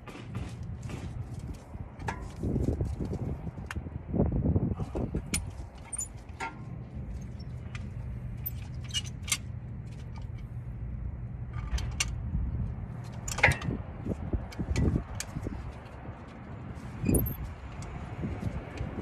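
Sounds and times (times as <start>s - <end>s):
steady low hum: 0.0s - 19.0s
metallic clicks of brake parts: 4.9s - 10.6s, 11.5s - 12.3s, 13.0s - 13.8s, 14.4s - 16.4s, 17.0s - 19.0s.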